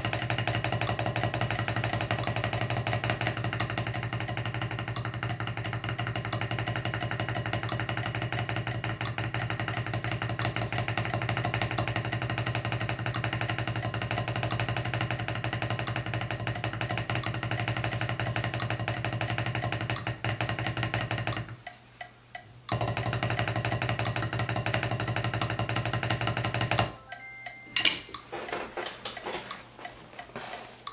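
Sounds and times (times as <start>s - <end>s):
sticks clattering on pad: 0.0s - 21.8s, 22.7s - 27.0s, 27.7s - 30.9s
drumsticks on practice pad: 0.0s - 30.9s
backing music track: 26.8s - 30.9s.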